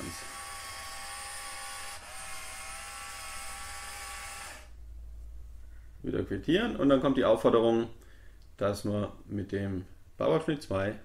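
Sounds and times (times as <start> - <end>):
electric motor whining through gears: 0.0 - 4.8.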